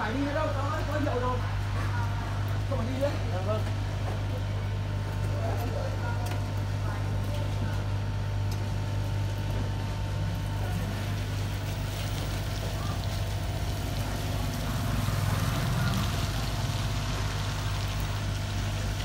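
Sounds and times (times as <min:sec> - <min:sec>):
traffic on a wet street: 0:10.3 - 0:19.0.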